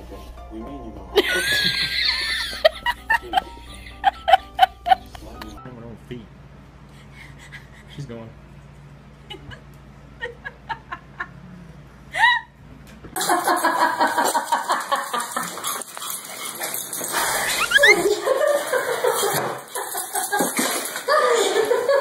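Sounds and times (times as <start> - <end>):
small dog yipping and whining: 17.5 - 18.1
short falling cry: 17.6 - 18.1.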